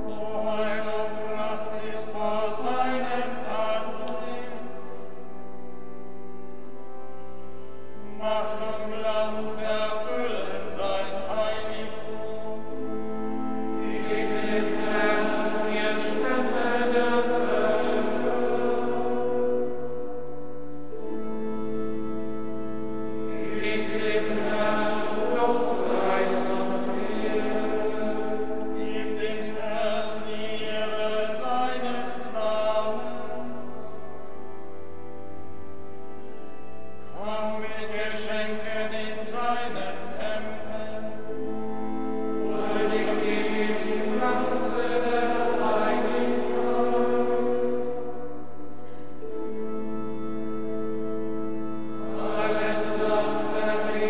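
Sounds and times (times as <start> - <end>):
male choir chanting: 0.0 - 5.2, 8.0 - 12.6, 13.7 - 19.9, 23.2 - 34.0, 37.1 - 41.3, 42.4 - 48.4, 52.0 - 54.0
sustained organ: 0.0 - 54.0.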